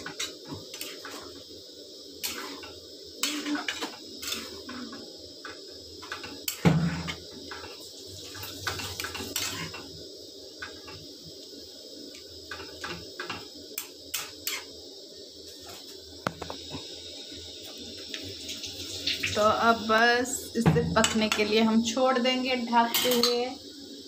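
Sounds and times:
metal spoon scraping a pan: 0.0s - 1.4s, 2.2s - 9.9s, 12.5s - 14.7s, 22.9s - 23.4s.

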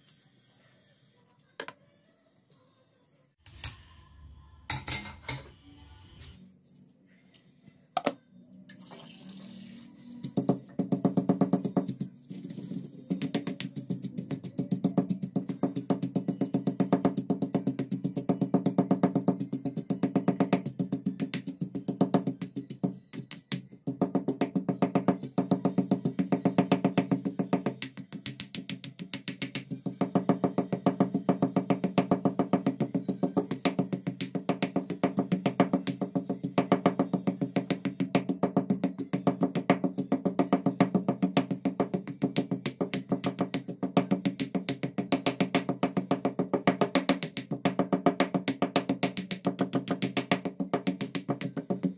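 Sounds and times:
music with fast percussive beat: 10.4s - 12.2s, 13.1s - 51.9s.

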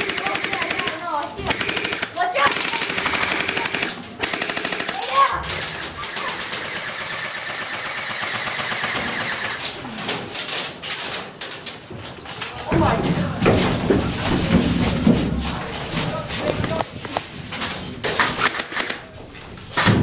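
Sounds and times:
airsoft rifles firing full auto: 0.0s - 9.7s, 18.2s - 19.1s.

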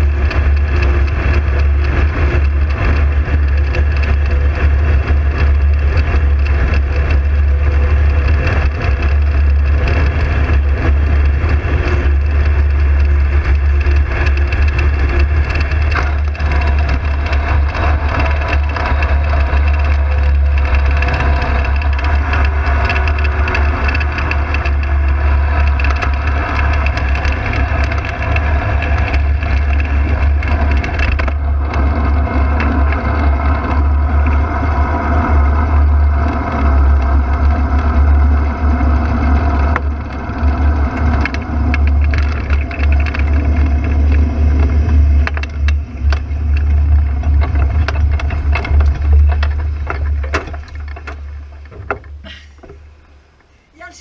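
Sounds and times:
aircraft engine running: 0.0s - 54.0s
wind rumble on microphone: 0.0s - 54.0s.

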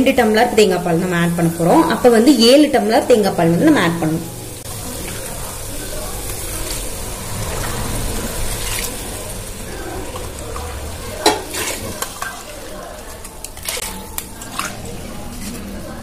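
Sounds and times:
sizzling in hot oil: 0.0s - 15.8s
liquid pouring and splashing: 4.4s - 15.7s.

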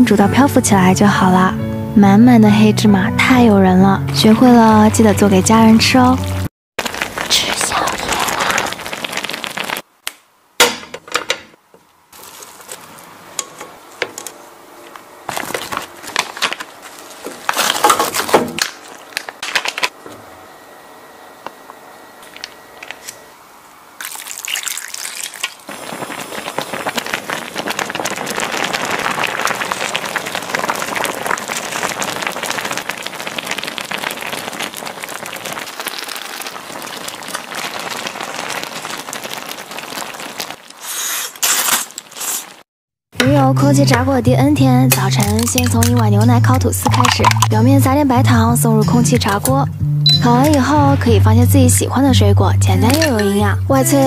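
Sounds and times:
stew boiling and bubbling: 3.2s - 20.6s, 21.2s - 42.7s, 43.4s - 54.0s
ingredients clicking into pot: 44.9s - 47.6s, 52.9s - 53.4s.

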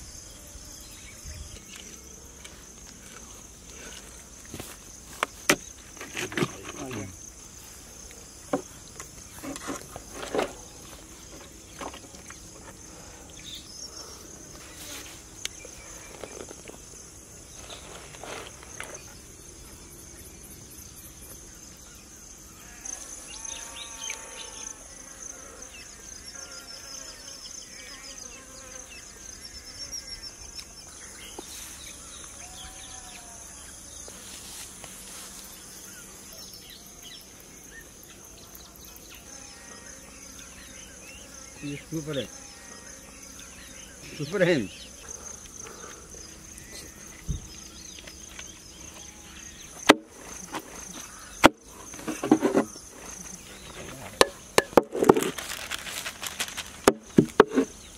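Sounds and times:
high-pitched insect drone: 18.4s - 54.5s.

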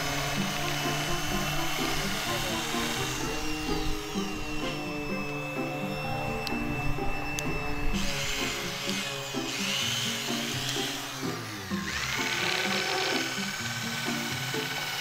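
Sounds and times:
background music: 0.0s - 15.0s
electric drill grinding: 0.0s - 15.0s.

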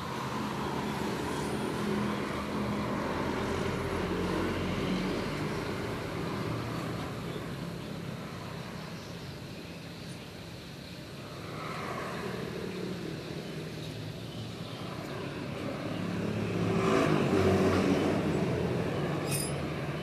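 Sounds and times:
vehicle engine passing: 15.2s - 20.0s.

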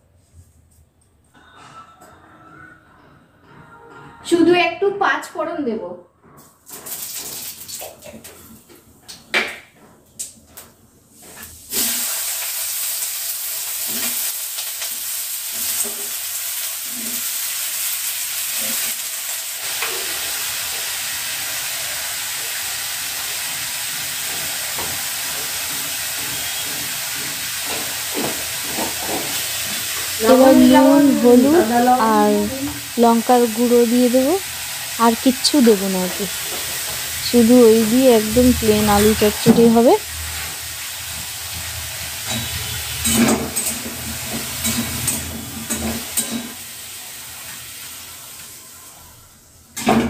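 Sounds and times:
potatoes sizzling in oil: 6.7s - 8.3s, 11.2s - 49.2s
seeds crackling in hot oil: 6.7s - 8.4s, 11.2s - 30.2s.

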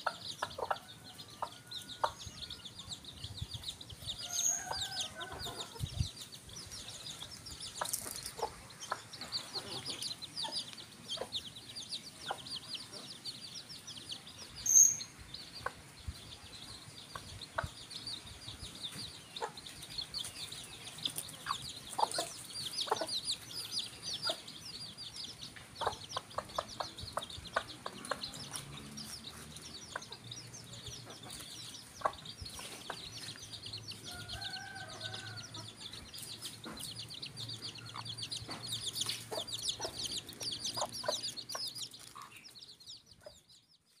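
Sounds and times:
hen clucking: 0.0s - 2.9s, 19.3s - 43.4s
chicks peeping: 0.0s - 44.0s.

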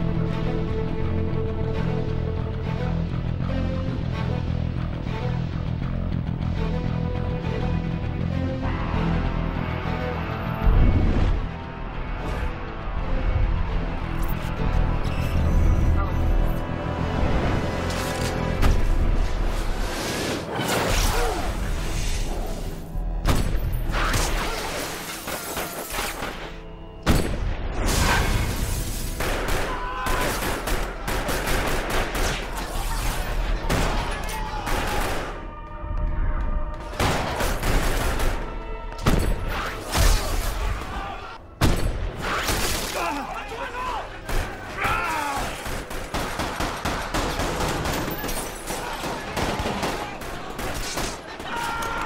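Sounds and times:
rapid gunfire: 29.2s - 32.6s, 45.4s - 51.4s.

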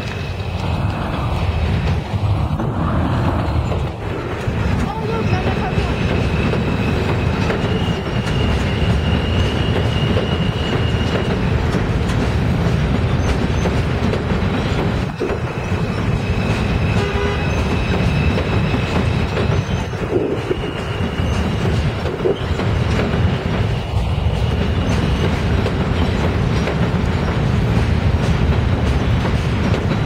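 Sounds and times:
subway train rumbling past: 0.0s - 30.0s
wheel squeal: 5.1s - 11.4s, 15.4s - 22.6s.

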